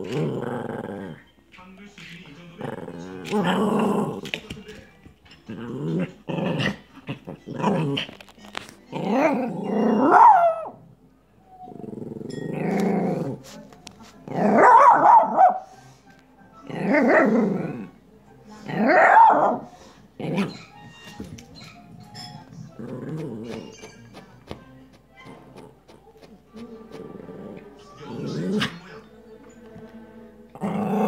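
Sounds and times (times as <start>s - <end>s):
dog growling: 0.0s - 1.3s, 2.6s - 4.4s, 5.4s - 8.3s, 8.9s - 10.8s, 11.6s - 13.5s, 16.6s - 18.0s, 18.6s - 20.8s, 22.5s - 24.1s, 25.2s - 29.0s, 30.5s - 31.0s.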